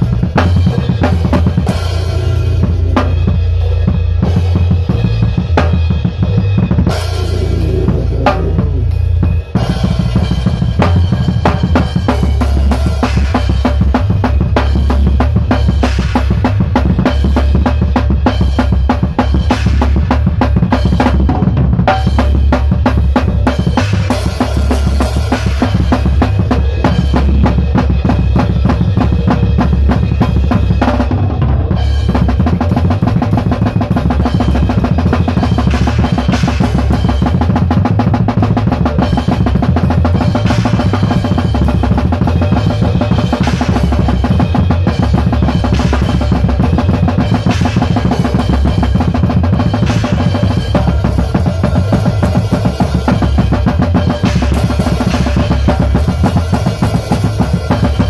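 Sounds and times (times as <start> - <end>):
bass guitar low notes: 0.0 - 12.9.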